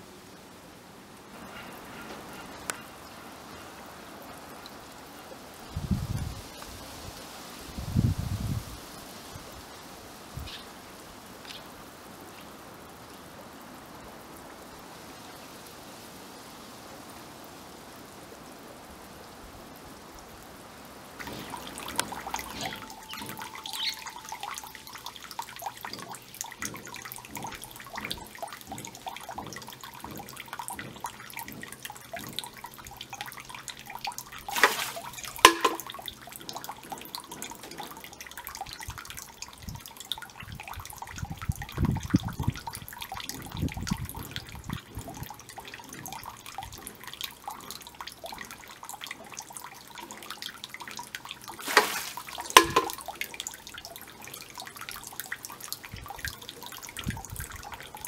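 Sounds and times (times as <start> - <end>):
water trickling into pond: 0.0 - 58.0.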